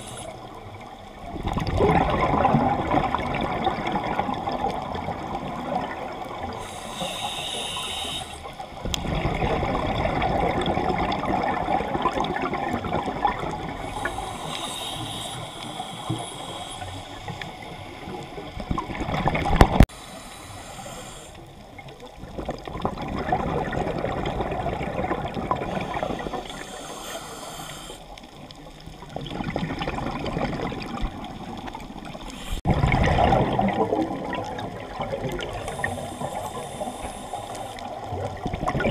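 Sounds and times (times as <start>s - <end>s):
regulator hissing inhale: 0.0s - 0.6s, 6.4s - 8.9s, 13.7s - 18.7s, 19.8s - 21.8s, 25.6s - 28.4s, 32.1s - 32.7s, 35.5s - 38.1s
bubbling exhale underwater: 0.0s - 16.9s, 21.0s - 27.0s, 29.0s - 38.9s.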